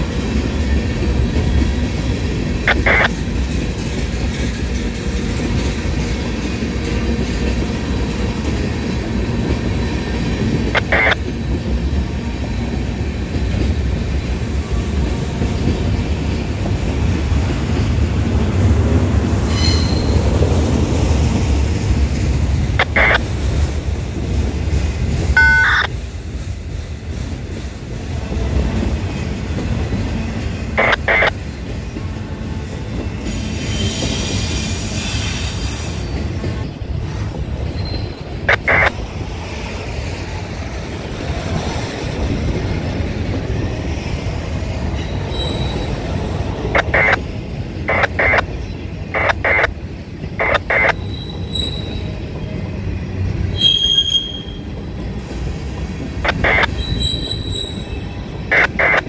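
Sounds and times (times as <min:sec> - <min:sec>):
train wheels rumbling on rail: 0:00.0 - 0:59.0
wheel squeals: 0:19.5 - 0:20.3, 0:33.3 - 0:36.4, 0:37.7 - 0:38.4, 0:45.0 - 0:46.0, 0:51.0 - 0:52.2, 0:53.5 - 0:54.7, 0:56.7 - 0:58.2.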